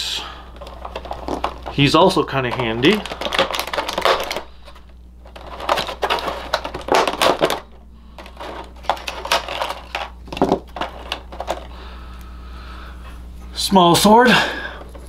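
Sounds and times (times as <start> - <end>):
plastic packaging clicks and clatters: 0.5 - 11.8.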